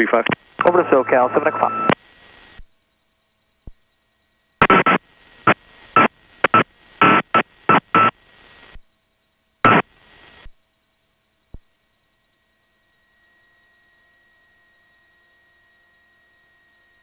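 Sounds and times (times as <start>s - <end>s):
radio static bursts: 0.0s - 2.6s, 4.6s - 8.8s, 9.6s - 10.5s
faint radio hiss: 0.0s - 2.8s, 4.6s - 10.7s.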